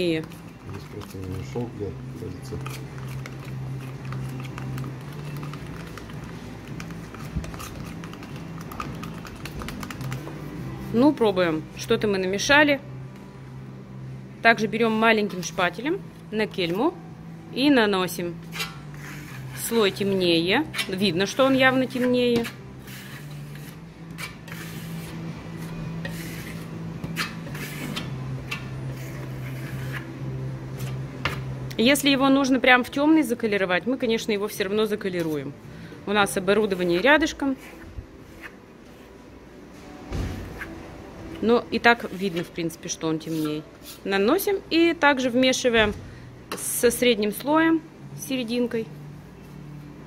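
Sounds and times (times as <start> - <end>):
metal spatula stirring paint: 2.5 - 10.3, 18.5 - 31.0
metal trowel scraping paint: 22.0 - 25.2, 26.0 - 28.1, 28.9 - 30.1.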